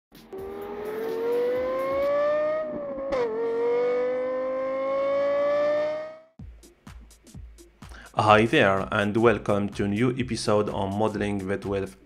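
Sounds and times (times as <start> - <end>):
car engine accelerating: 0.1 - 6.4.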